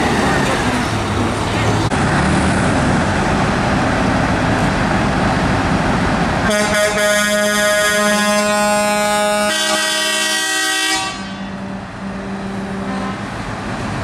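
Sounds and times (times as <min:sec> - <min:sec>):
truck engines rumbling: 0:00.0 - 0:14.0
truck air horn blast: 0:06.5 - 0:13.4.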